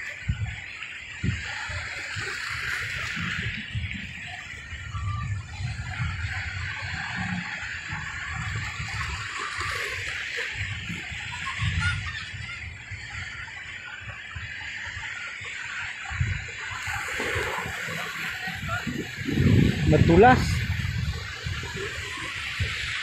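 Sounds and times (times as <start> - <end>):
waves breaking on a breakwater: 0.0 - 23.0
wind buffeting the microphone: 0.0 - 23.0.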